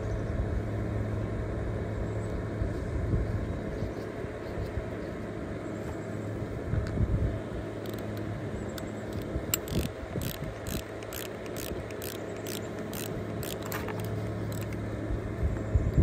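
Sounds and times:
steady low hum: 0:00.0 - 0:16.0
ratchet wrench clicking: 0:07.8 - 0:08.2, 0:08.8 - 0:14.8.

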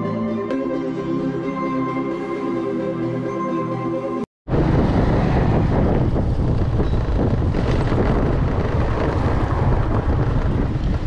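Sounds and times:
motorbike running: 0:04.5 - 0:11.0
wind buffeting microphone: 0:04.5 - 0:11.0.

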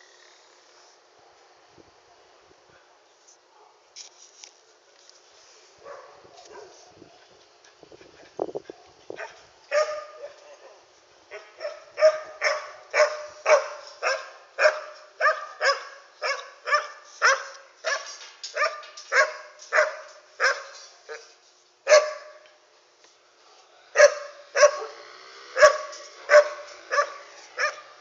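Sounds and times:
dog barking: 0:03.5 - 0:03.8, 0:05.8 - 0:06.8, 0:08.7 - 0:10.3, 0:11.3 - 0:21.3, 0:21.9 - 0:22.4, 0:24.0 - 0:25.0, 0:25.6 - 0:27.9.

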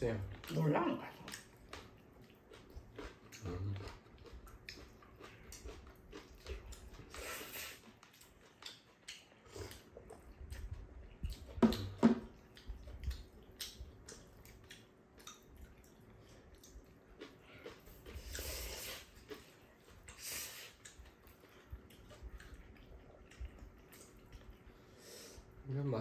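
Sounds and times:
chewing: 0:00.0 - 0:25.6
slurping noodles: 0:18.2 - 0:19.2.

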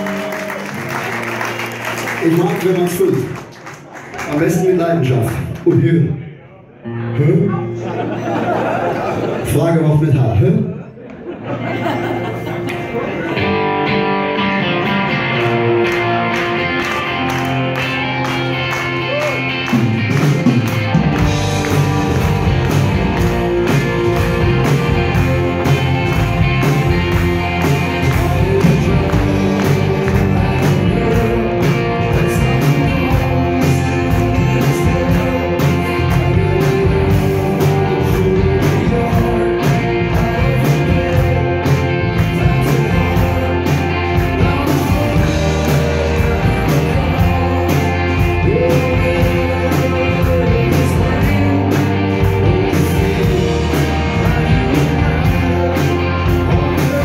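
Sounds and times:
live rock band playing: 0:00.0 - 0:03.5, 0:11.3 - 0:57.0
man singing: 0:23.6 - 0:57.0.

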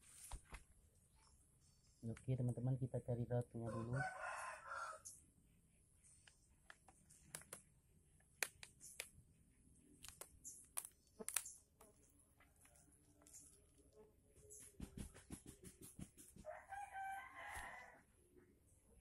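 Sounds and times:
faint clicks and crackles: 0:06.2 - 0:09.2.

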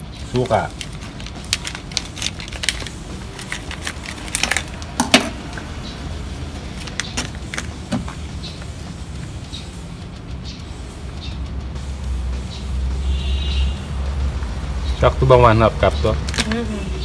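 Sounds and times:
plastic pouch crinkling and tearing: 0:00.7 - 0:04.9.

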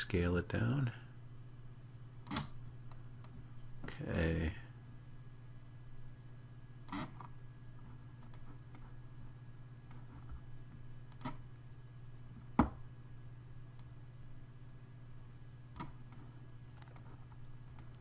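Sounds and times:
steady low hum: 0:00.0 - 0:18.0
computer mouse and key clicks: 0:02.2 - 0:03.4, 0:06.9 - 0:09.0, 0:09.8 - 0:10.4, 0:11.1 - 0:11.4, 0:15.7 - 0:18.0.

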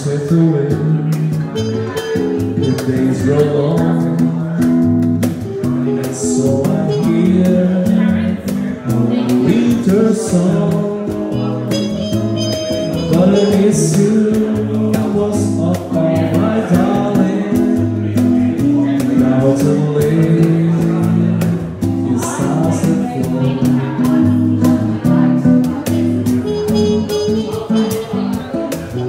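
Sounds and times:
acoustic guitar: 0:00.0 - 0:29.0
low bass notes: 0:00.0 - 0:29.0
man singing: 0:00.0 - 0:29.0.

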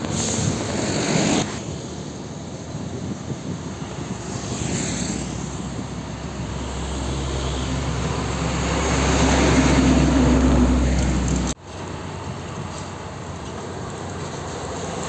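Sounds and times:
tyre noise: 0:00.0 - 0:01.7
truck engine drone: 0:00.0 - 0:15.0.

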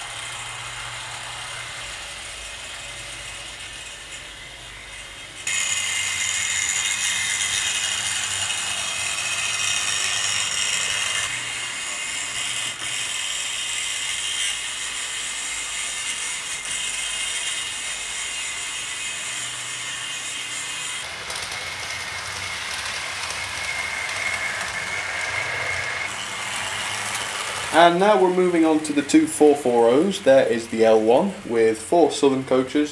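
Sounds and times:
model train motors whining: 0:00.0 - 0:32.9
wheels rattling on track: 0:21.0 - 0:30.4.

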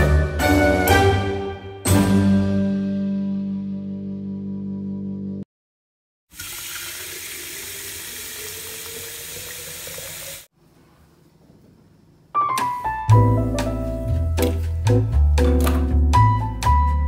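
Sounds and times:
background music: 0:00.0 - 0:05.4, 0:12.4 - 0:17.0
tap water running into pitcher: 0:06.3 - 0:10.5.

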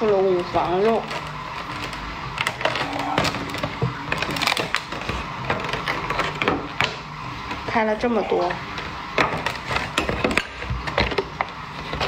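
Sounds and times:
plastic container crackling: 0:00.0 - 0:06.9.

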